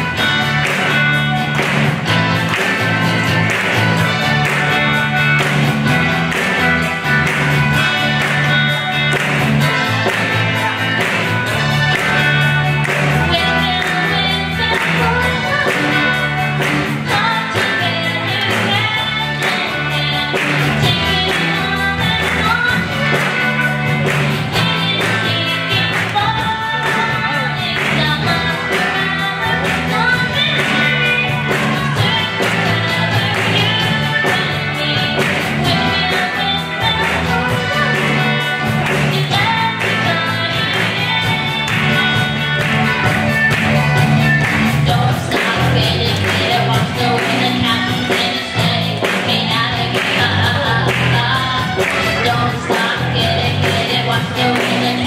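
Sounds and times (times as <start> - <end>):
bass guitar: 0.0 - 55.0
drums: 0.0 - 55.0
electric guitars: 0.0 - 55.0
girl singing: 11.6 - 43.5, 44.6 - 55.0.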